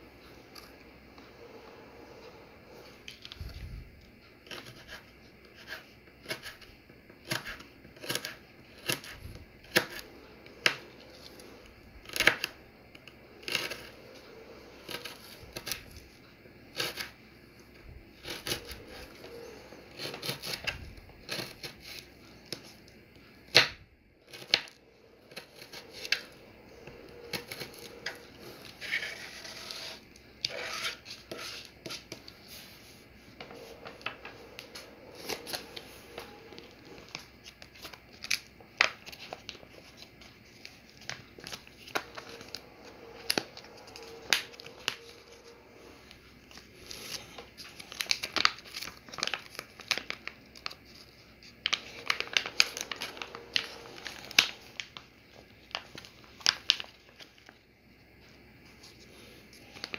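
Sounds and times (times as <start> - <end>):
knife scraping cutting board: 28.8 - 32.0.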